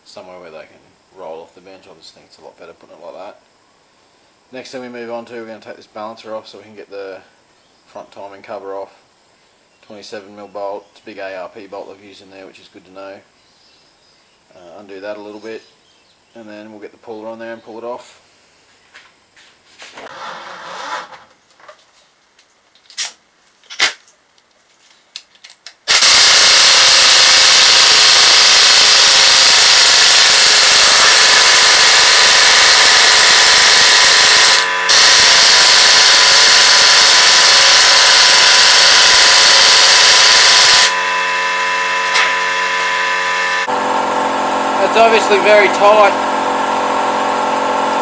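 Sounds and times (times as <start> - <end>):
air impact wrench hammering: 25.9 - 45.0.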